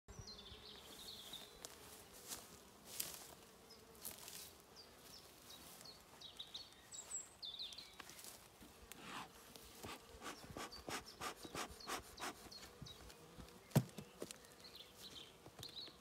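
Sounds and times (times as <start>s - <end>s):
honeybees buzzing: 0.1s - 16.0s.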